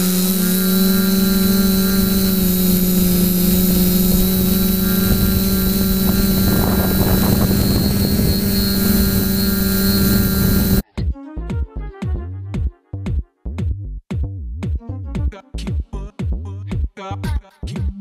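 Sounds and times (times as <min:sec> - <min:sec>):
drone motors humming and whining: 0:00.0 - 0:10.8.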